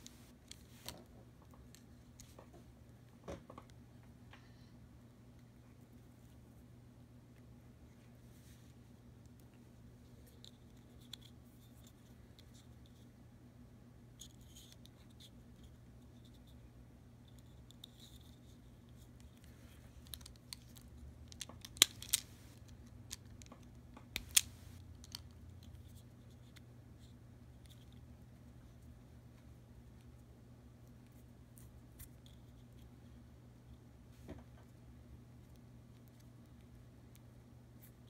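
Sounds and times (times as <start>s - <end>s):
wires being handled: 0.0s - 2.7s, 14.2s - 34.8s.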